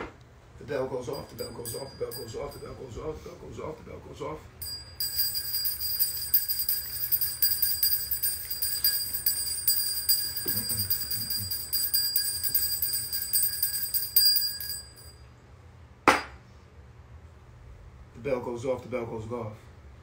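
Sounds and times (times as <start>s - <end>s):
hand bell ringing: 1.1s - 3.0s, 4.6s - 15.2s.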